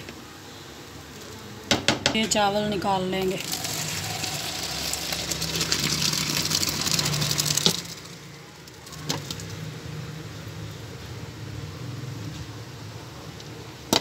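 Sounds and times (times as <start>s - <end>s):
water gushing into a colander: 3.2s - 9.5s.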